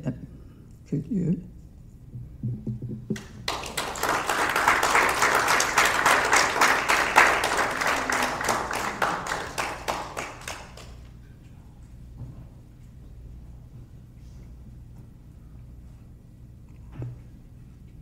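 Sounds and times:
audience applauding: 3.2s - 11.1s.

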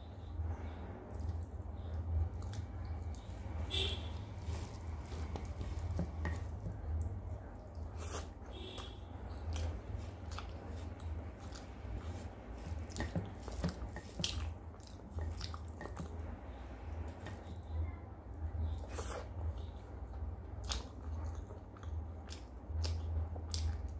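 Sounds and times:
soft wet squishes: 0.0s - 23.9s
steady low hum: 0.0s - 23.9s
fingers mashing rice and curry: 1.1s - 17.7s.

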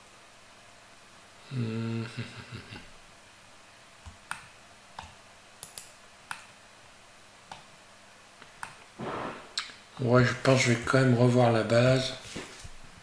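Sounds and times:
mouse and keyboard clicks: 4.0s - 6.5s.

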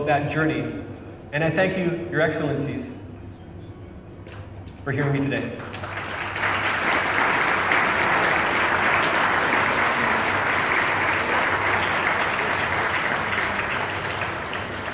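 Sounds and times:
audience applauding: 5.0s - 14.9s.

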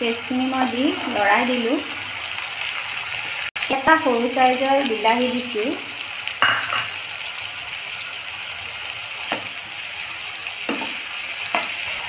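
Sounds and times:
vegetables sizzling in hot oil: 0.0s - 12.0s
spatula scraping a pan: 9.2s - 12.0s.

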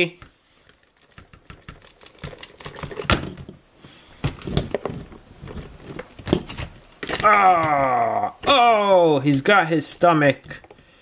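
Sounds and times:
plastic toys clicking and knocking: 0.6s - 3.6s, 4.2s - 9.6s.

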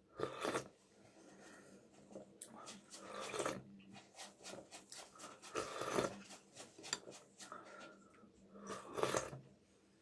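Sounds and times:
noodles slurped off a spoon: 0.2s - 0.7s, 8.6s - 9.4s.

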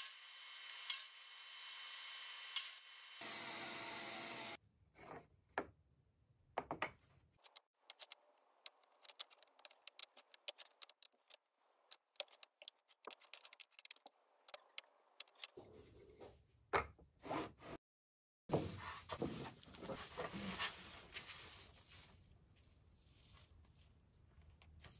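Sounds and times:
wooden blocks clicking: 7.4s - 15.5s.

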